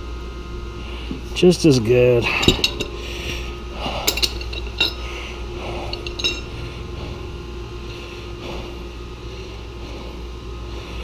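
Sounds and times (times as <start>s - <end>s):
steady low hum: 0.0s - 11.0s
metal tools clinking: 2.3s - 3.0s, 3.9s - 5.1s, 5.8s - 6.6s.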